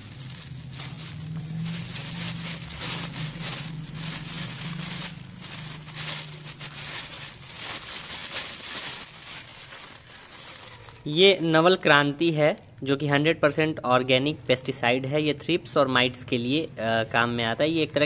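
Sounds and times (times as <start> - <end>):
low steady hum: 0.0 - 11.0
plastic bags crinkling: 0.0 - 13.1.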